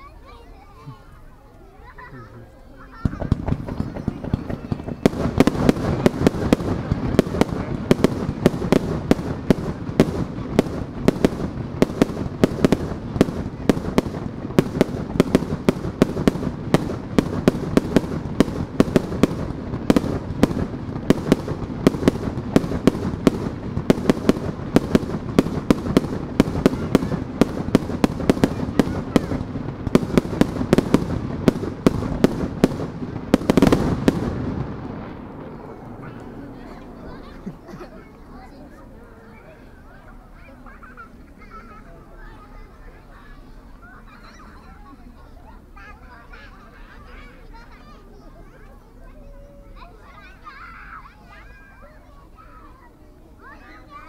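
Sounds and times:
fireworks crackling rumble: 0:00.0 - 0:54.0
fireworks bangs: 0:02.9 - 0:38.9.

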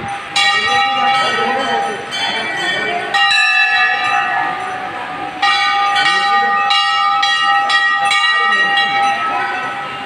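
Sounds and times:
murmur of voices: 0:00.0 - 0:10.0
temple bells ringing: 0:00.0 - 0:10.0.

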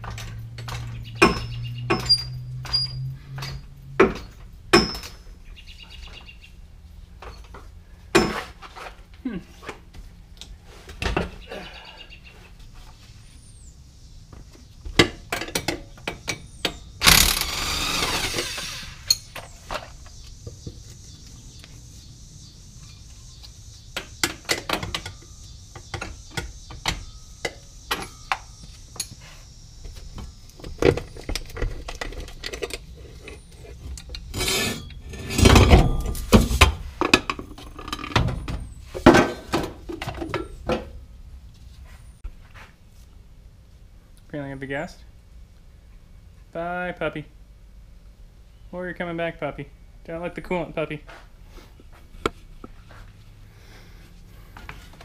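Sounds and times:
loud burst of noise: 0:17.0 - 0:19.2.

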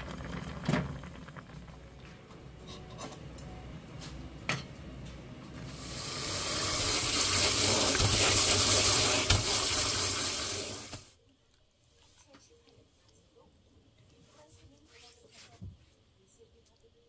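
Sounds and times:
pot boiling: 0:00.0 - 0:03.4, 0:05.5 - 0:11.2
hands rubbing and rinsing noodles: 0:05.7 - 0:11.1, 0:14.1 - 0:16.2
tap water running into strainer: 0:05.7 - 0:11.1.

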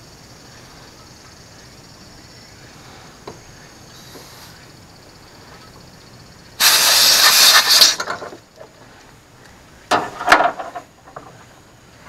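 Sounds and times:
refrigerant gas hissing: 0:02.6 - 0:05.5, 0:06.4 - 0:08.4
sharp gas puffs: 0:06.6 - 0:08.3.

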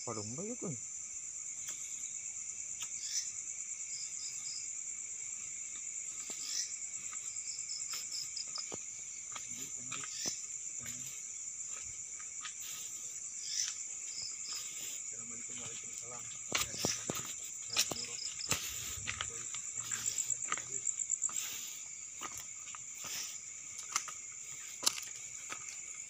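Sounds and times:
crickets trilling: 0:00.0 - 0:26.0.

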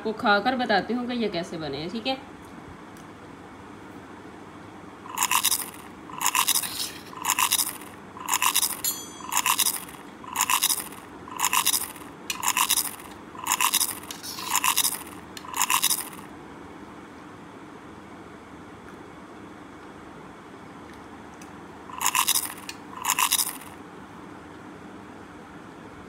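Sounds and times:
scratchy scraping: 0:05.1 - 0:16.2.

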